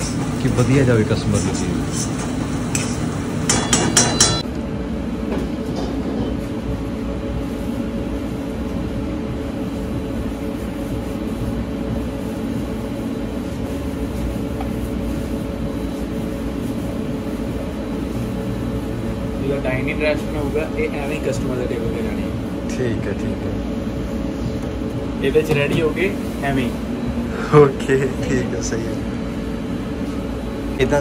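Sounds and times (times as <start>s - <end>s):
kitchen ventilation hum: 0.0s - 31.0s.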